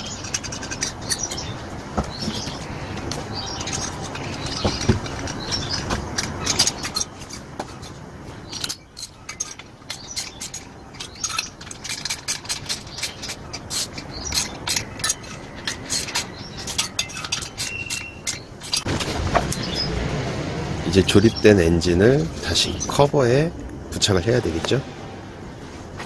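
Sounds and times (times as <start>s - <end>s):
metal clicks of tools and engine parts: 0.0s - 19.7s.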